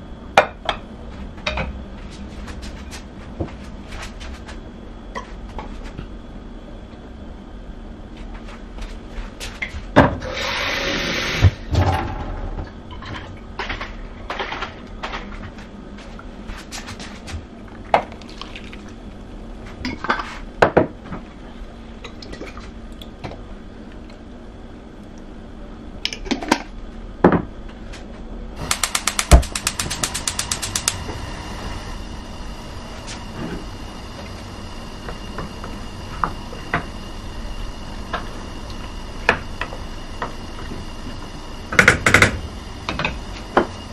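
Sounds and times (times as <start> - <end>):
fast run of sharp clicks: 28.7 - 31.0.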